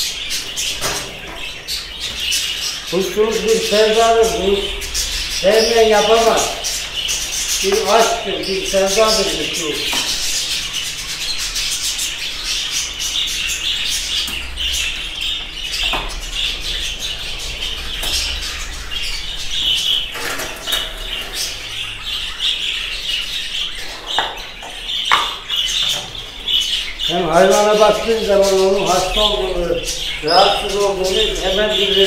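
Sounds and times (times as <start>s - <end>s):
budgerigars chattering: 0.0s - 32.0s
clicks of wire cages: 0.7s - 1.4s, 20.1s - 21.6s.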